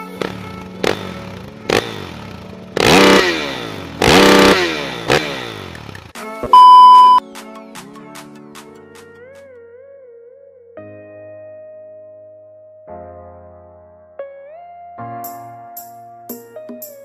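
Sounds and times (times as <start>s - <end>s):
music: 0.0s - 2.8s, 6.1s - 17.0s
engine revving: 0.2s - 7.2s
loud electronic beep: 6.5s - 7.2s.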